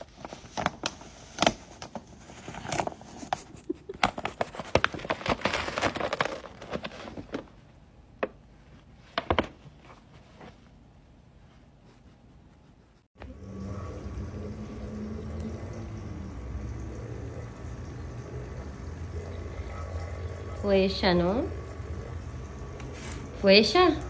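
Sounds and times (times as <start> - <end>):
paper bag rustling and crinkling: 0.0 - 7.7.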